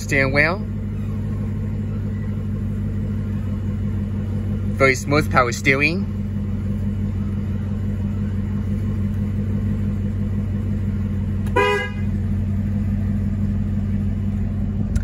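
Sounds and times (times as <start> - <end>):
car engine idling: 0.0 - 15.0
car horn toot: 11.4 - 12.2.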